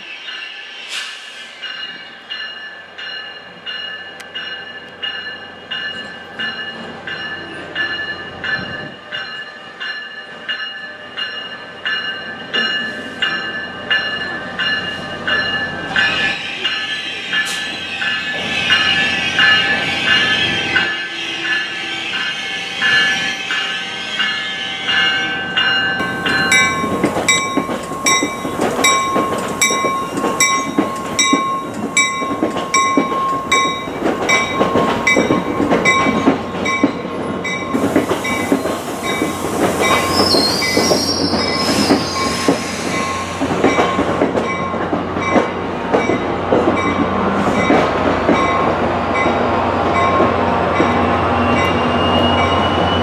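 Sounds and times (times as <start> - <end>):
train bell ringing: 0.0 - 0.9, 1.5 - 53.0
train and wheel noise: 0.0 - 53.0.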